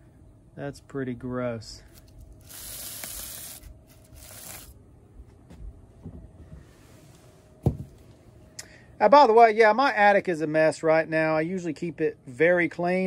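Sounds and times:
foam filter pad rustling and scraping: 6.5s - 7.6s.

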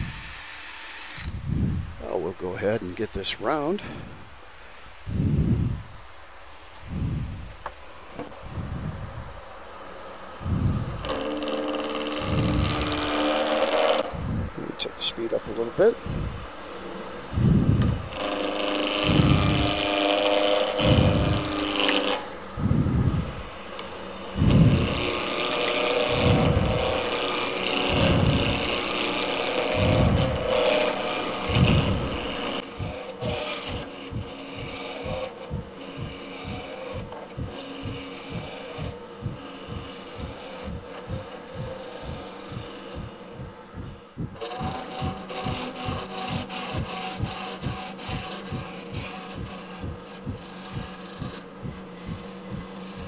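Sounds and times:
gouge cutting wood on lathe: 9.8s - 53.0s.

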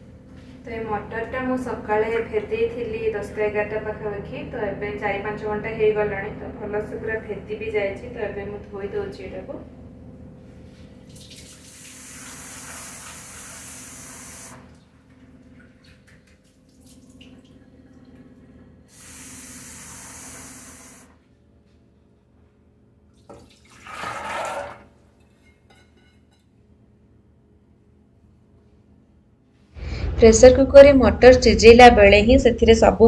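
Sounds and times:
kitchen tap running: 11.0s - 18.2s, 18.9s - 21.1s, 23.2s - 24.9s.

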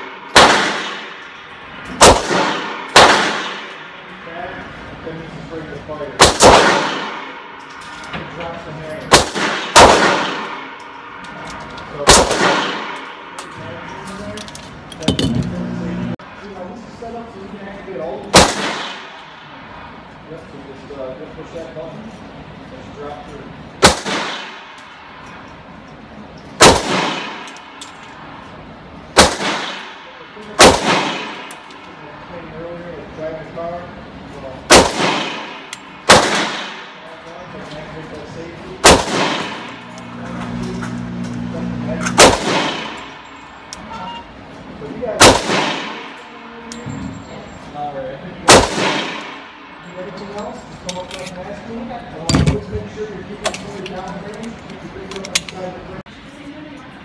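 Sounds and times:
gunshot ringing echo: 0.0s - 1.3s, 1.9s - 4.0s, 6.2s - 7.6s, 9.1s - 10.8s, 12.0s - 13.4s, 26.6s - 27.8s, 29.2s - 31.6s, 34.7s - 37.0s, 38.8s - 40.2s, 42.1s - 43.3s, 45.2s - 46.2s, 48.4s - 49.6s
handgun shots: 0.3s - 1.2s, 2.0s - 3.8s, 6.2s - 7.4s, 9.1s - 10.8s, 12.0s - 13.4s, 26.6s - 27.9s, 30.6s - 31.7s, 34.7s - 36.9s, 38.8s - 40.6s, 42.0s - 43.1s, 45.2s - 46.2s, 48.5s - 49.4s.

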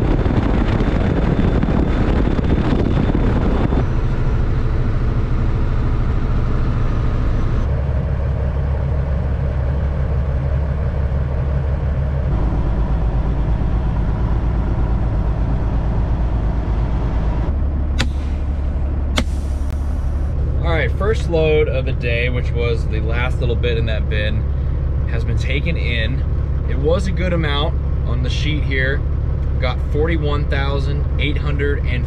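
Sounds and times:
truck diesel engine running: 0.0s - 32.0s
air brake knob sharp sounds: 18.0s - 18.5s, 19.2s - 20.1s.

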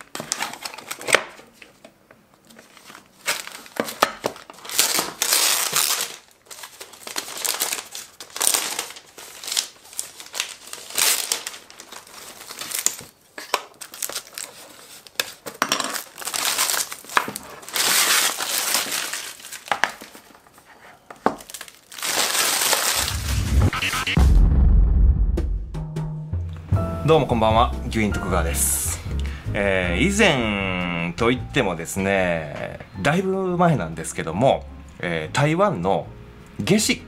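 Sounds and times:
plastic wrapping crinkling: 0.0s - 23.2s.

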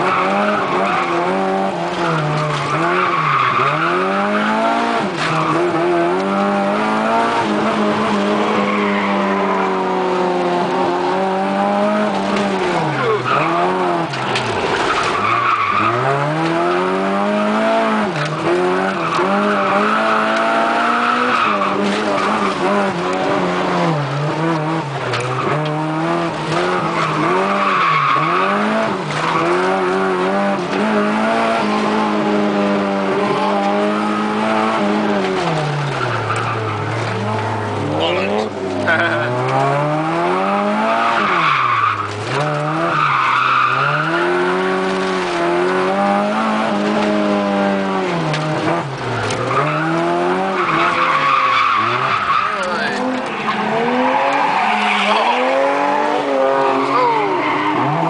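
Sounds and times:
car engine at high revs: 0.0s - 58.0s
tyres squealing: 48.7s - 58.0s.

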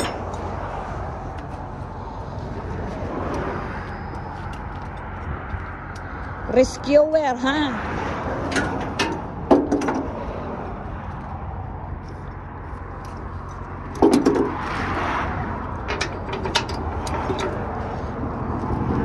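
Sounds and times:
metal chain clinking and scraping: 0.0s - 0.6s, 3.0s - 6.0s, 15.7s - 18.2s.

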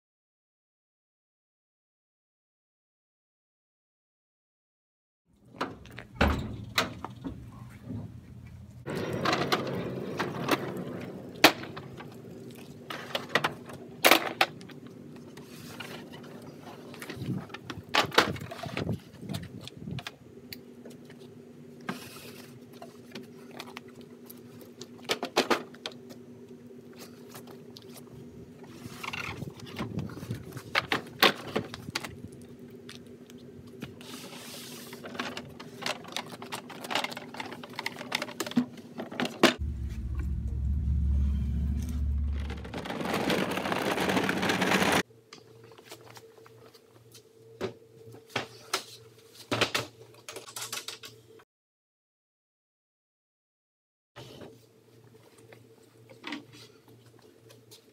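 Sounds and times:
steady low hum: 39.6s - 43.4s
low rumble and rushing noise: 39.6s - 44.1s.

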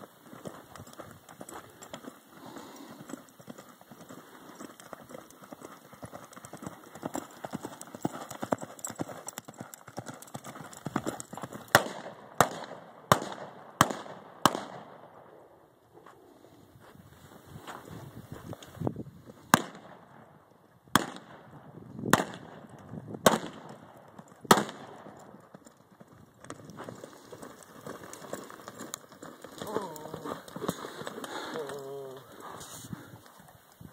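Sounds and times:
horse hoofbeats on sand: 0.0s - 14.0s, 23.3s - 33.9s
sharp gunshots: 11.7s - 15.0s, 19.5s - 20.0s, 20.9s - 21.5s, 22.1s - 22.6s, 23.2s - 23.8s, 24.5s - 25.0s.

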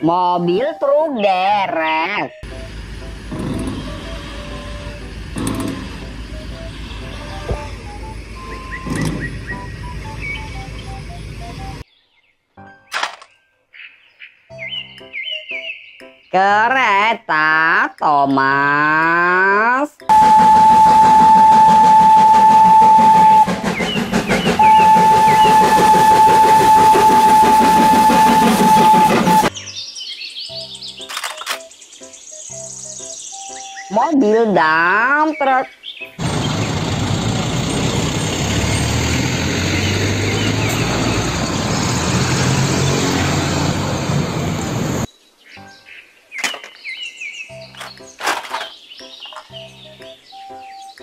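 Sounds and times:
diesel truck driving by: 2.4s - 11.8s, 36.2s - 45.1s
train running rumble: 2.4s - 11.8s, 20.1s - 29.5s, 36.2s - 45.1s
bird chirps: 6.2s - 16.4s, 23.5s - 25.7s, 29.5s - 34.2s, 45.1s - 51.0s
steam locomotive whistle blasts: 20.1s - 29.5s
plastic toy trucks handled: 46.4s - 46.8s, 47.8s - 49.5s.

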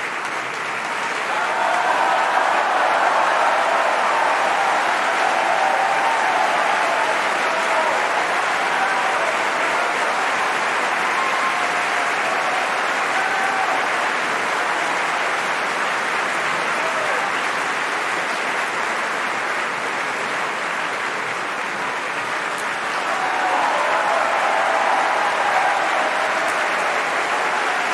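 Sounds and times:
audience applauding: 0.0s - 27.9s.

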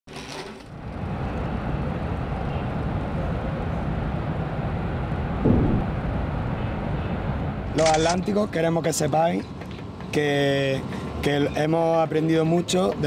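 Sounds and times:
low rumbling outdoor noise: 0.1s - 13.0s.

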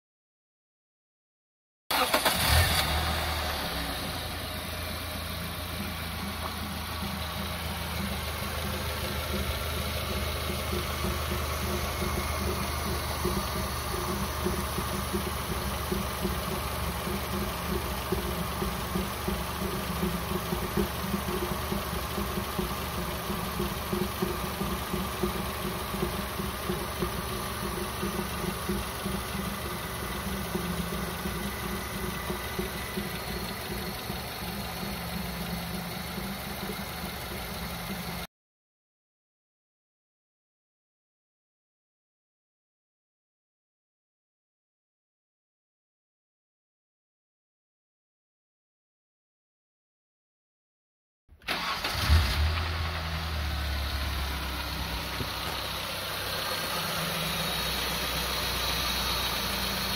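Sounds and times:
car engine idling: 1.9s - 38.3s, 51.4s - 59.9s
bubbling noise from engine intake: 8.9s - 38.2s.

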